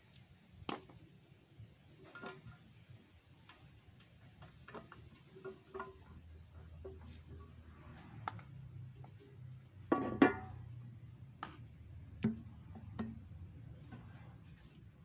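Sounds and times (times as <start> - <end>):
metal tin knocking on concrete: 9.9 - 10.6.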